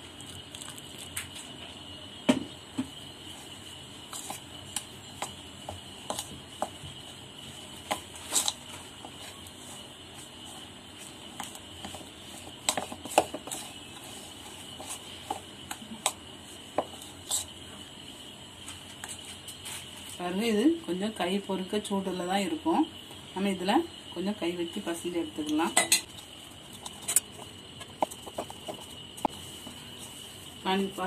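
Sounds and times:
soft scraping of dough: 3.3 - 20.2, 26.1 - 31.0.

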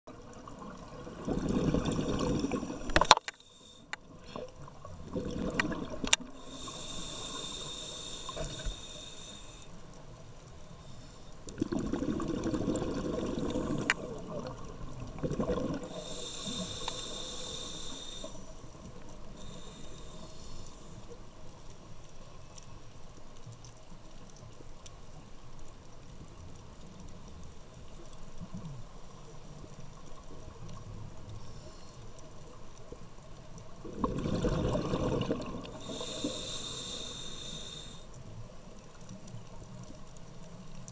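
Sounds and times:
gurgling exhaled bubbles: 0.3 - 3.0, 4.2 - 6.6, 11.5 - 16.8, 33.8 - 36.5
hissing regulator inhalations: 1.9 - 4.5, 6.2 - 9.8, 15.8 - 21.2, 35.6 - 38.2.

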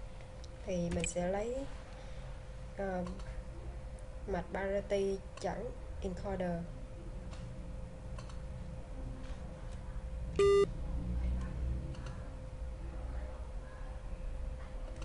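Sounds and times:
faint steady hum: 0.0 - 15.0
short electronic beep: 10.4 - 10.7.

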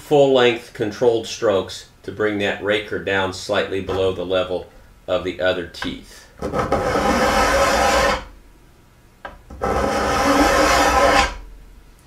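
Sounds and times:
file rasping on metal: 6.5 - 8.3, 9.5 - 11.4.

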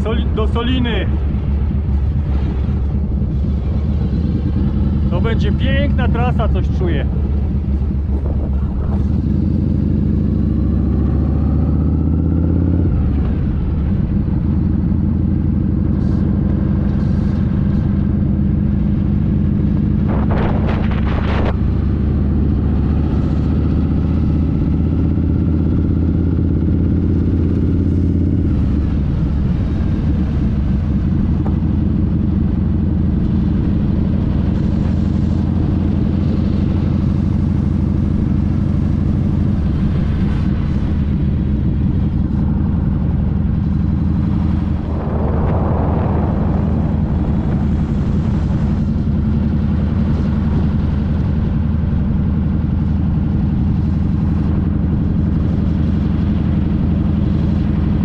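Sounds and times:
motorcycle engine accelerating: 0.0 - 58.0.

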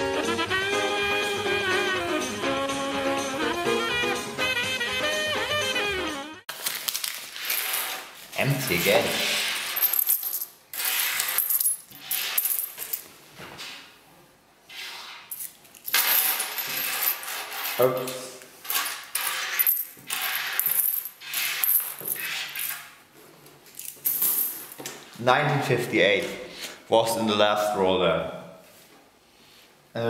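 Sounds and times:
coins clinking on wooden table: 7.4 - 8.1, 9.4 - 13.1, 15.3 - 22.9, 23.7 - 24.9.

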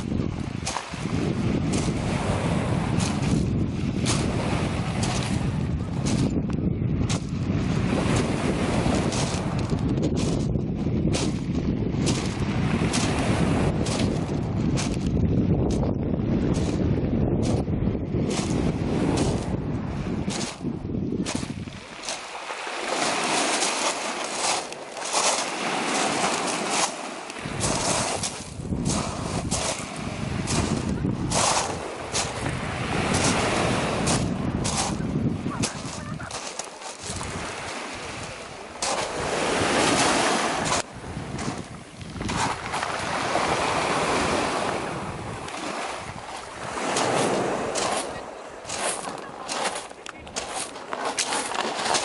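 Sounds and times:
footsteps on pebbles: 0.6 - 2.2, 2.9 - 3.5, 4.1 - 6.4, 8.0 - 10.6, 11.2 - 15.9, 16.5 - 16.8, 18.3 - 19.6, 20.3 - 43.4, 45.5 - 52.0
pebbles clattering: 21.3 - 32.5, 35.6 - 37.4, 48.7 - 52.0.

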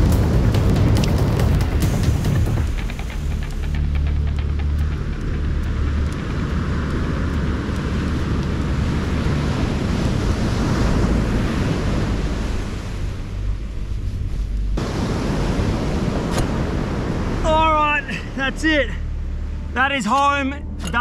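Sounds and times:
wind buffeting microphone: 0.0 - 17.4
surf breaking on sandy beach: 5.8 - 18.7.

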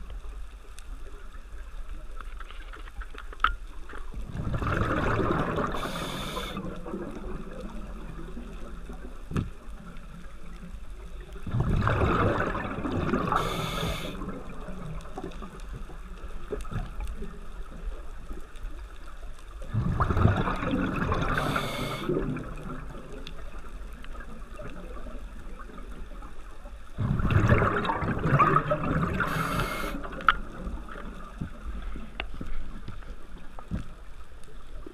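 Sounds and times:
diver exhaling bubbles: 4.3 - 7.2, 11.5 - 14.4, 19.7 - 22.8, 27.0 - 30.2
regulator hiss: 5.7 - 6.6, 13.3 - 14.2, 21.3 - 22.1, 29.2 - 30.1.

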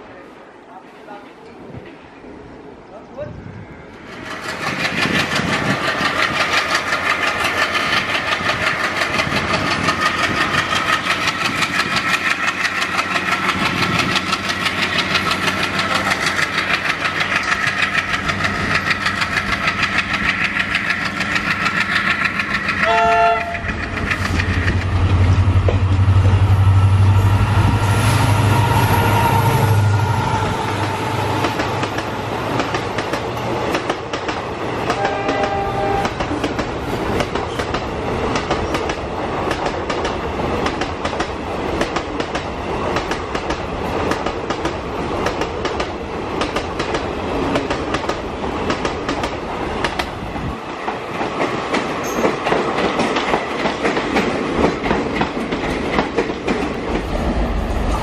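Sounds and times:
train wheels clattering: 4.0 - 58.0
train horn blast: 22.8 - 23.8, 34.9 - 36.3.

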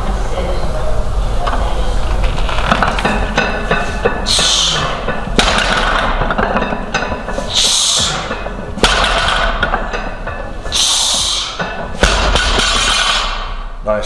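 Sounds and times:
barbell plates knocking on platform: 2.5 - 13.6
sharp hissing breath: 10.7 - 11.6.

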